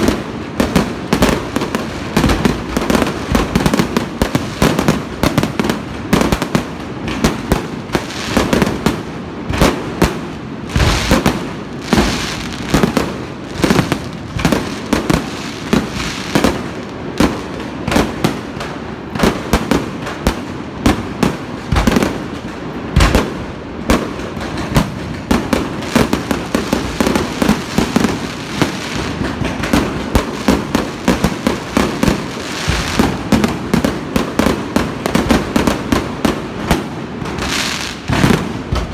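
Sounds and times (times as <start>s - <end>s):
fireworks bursts and crackling: 0.0s - 38.9s.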